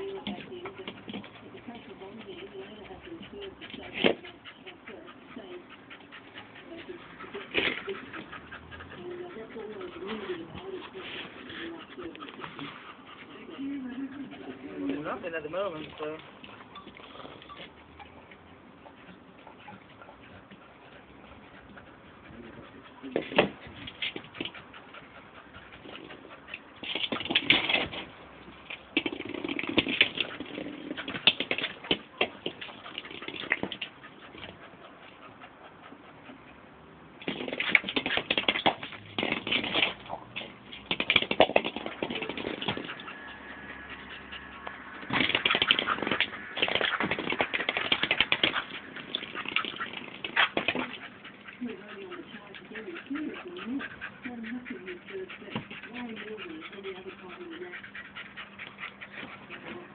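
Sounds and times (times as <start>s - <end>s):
puppy claws scrabbling on concrete: 25.8s - 28.1s, 28.7s - 34.6s, 37.2s - 43.2s, 44.6s - 54.0s
ball knocking: 40.8s - 43.1s.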